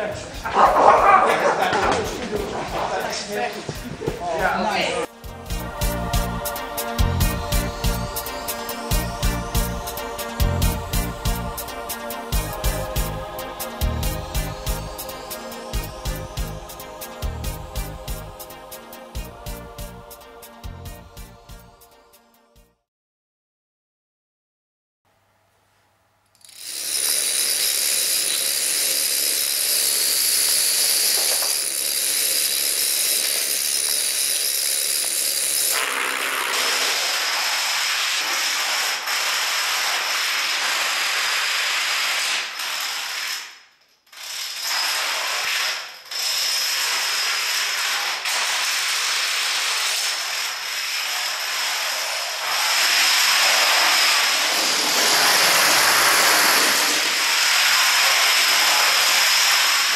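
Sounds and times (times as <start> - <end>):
plastic dominoes toppling clatter: 26.4 - 43.6.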